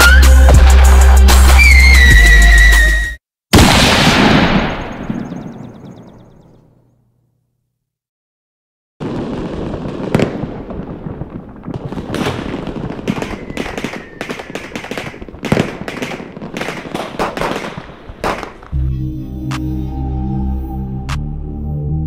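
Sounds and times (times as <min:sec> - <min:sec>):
faint falling whistle: 0:00.0 - 0:00.5, 0:01.5 - 0:03.2, 0:13.2 - 0:14.3
fireworks bangs and crackles: 0:00.1 - 0:02.3, 0:03.6 - 0:06.2, 0:09.0 - 0:18.8.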